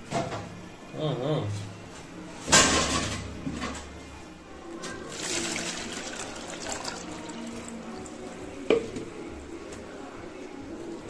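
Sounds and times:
water pouring into plastic bowl: 5.0 - 8.4.

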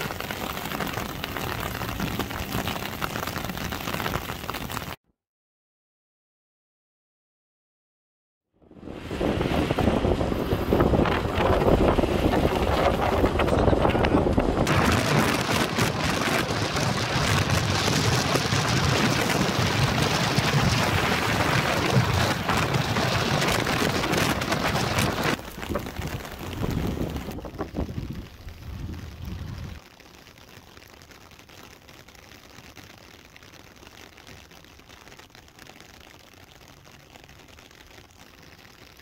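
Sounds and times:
wind rushing over microphone: 8.6 - 29.8.

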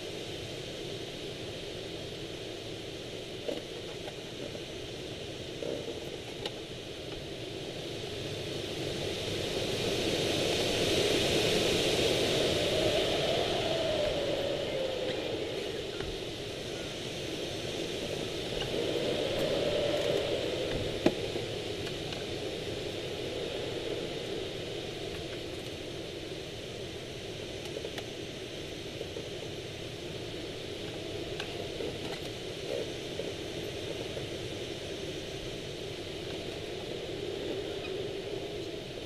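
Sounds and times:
airflow rushing over cockpit: 10.6 - 27.6.

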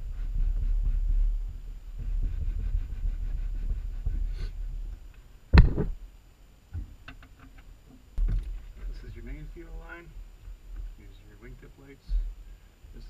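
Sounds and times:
low rumbling handling noise: 0.0 - 13.0
sharp knock: 5.6 - 6.0.

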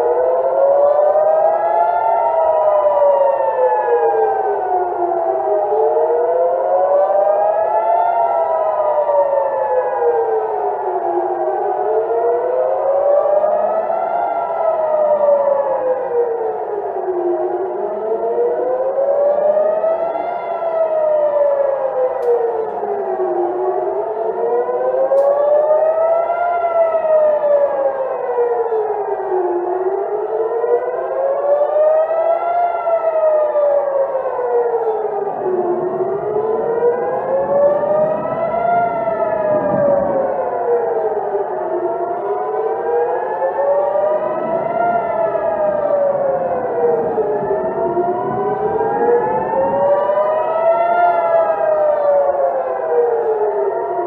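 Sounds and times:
air-raid siren wailing: 0.0 - 54.0.

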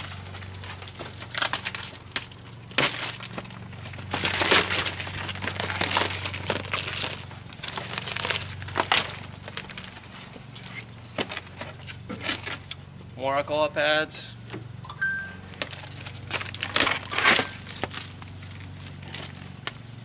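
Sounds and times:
packaging crinkling: 4.0 - 10.0, 15.4 - 19.4.

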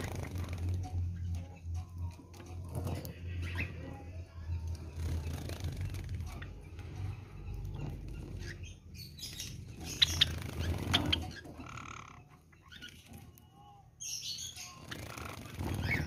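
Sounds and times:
birds fluttering wings: 0.0 - 1.4, 4.7 - 6.7, 9.2 - 11.5, 14.8 - 16.0
bird chirps: 6.3 - 16.0.

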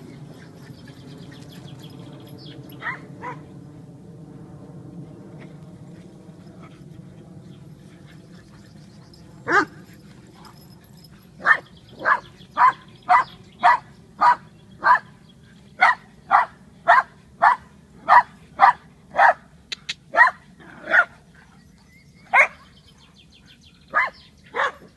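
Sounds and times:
small dog barking: 2.8 - 3.4, 9.5 - 9.8, 11.4 - 15.1, 15.8 - 19.4, 20.1 - 21.2, 22.3 - 22.6, 23.9 - 24.9.

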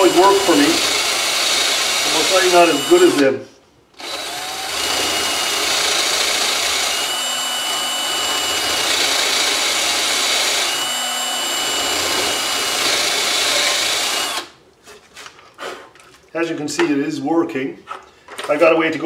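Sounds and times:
power drill boring into wood: 0.0 - 3.3, 4.0 - 14.5.

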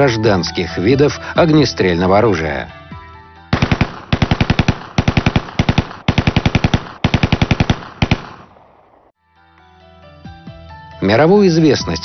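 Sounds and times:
automatic gunfire bursts: 3.5 - 8.5.

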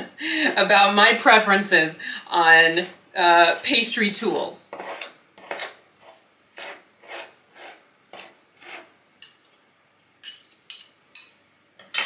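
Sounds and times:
knives scraping on wooden counter: 4.7 - 9.6.

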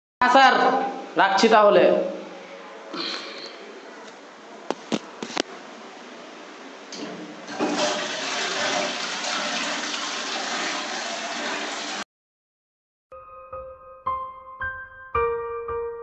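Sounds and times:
toilet flushing: 6.9 - 12.0.

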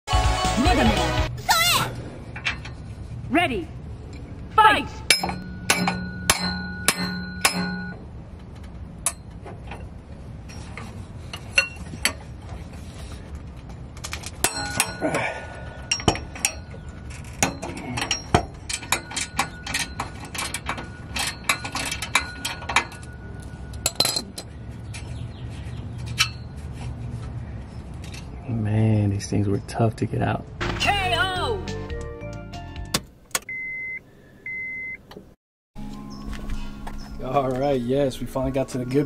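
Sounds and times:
tools knocking on metal exhaust: 5.1 - 8.0.

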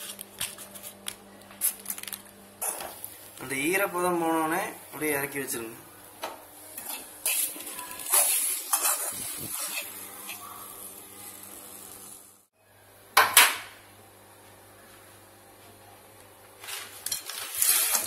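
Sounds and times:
faint sizzle: 0.0 - 13.1
spatula scraping pan: 6.8 - 10.5, 17.1 - 18.0.

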